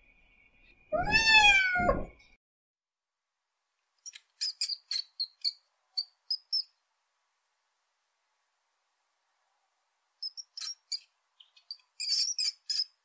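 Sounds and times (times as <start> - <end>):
cat chirping: 0.9 - 2.1
cat meowing: 0.9 - 2.2.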